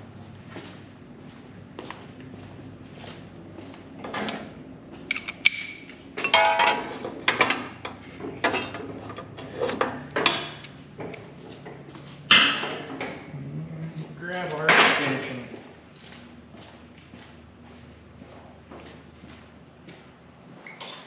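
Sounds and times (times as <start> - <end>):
metal tools clinking and knocking: 4.0 - 10.7.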